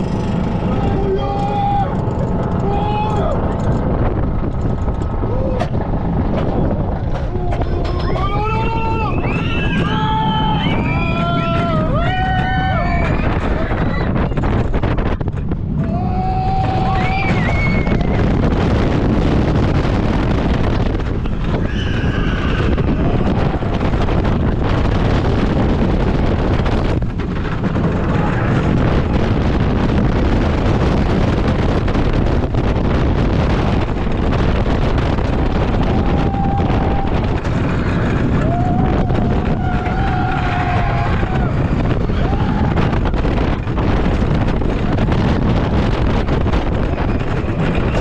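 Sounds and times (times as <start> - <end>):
coaster wheels rumbling on track: 0.0 - 48.0
wind rushing over microphone: 0.0 - 48.0
riders screaming: 7.3 - 14.4, 15.8 - 18.2, 21.5 - 23.8, 35.6 - 43.4.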